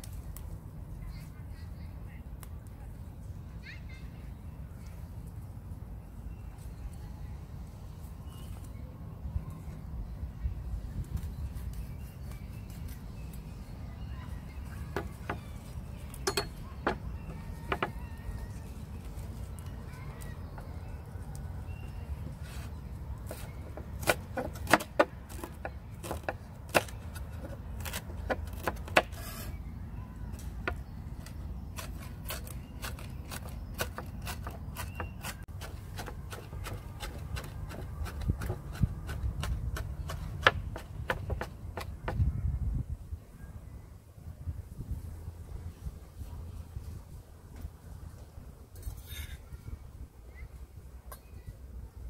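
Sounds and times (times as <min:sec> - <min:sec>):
knife chopping on wooden board: 0:23.3 - 0:26.9, 0:31.8 - 0:42.2.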